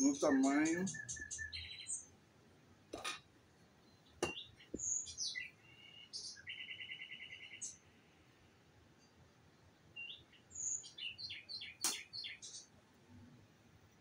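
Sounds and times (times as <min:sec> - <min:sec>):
songbirds chirping and trilling: 0:00.0 - 0:14.0.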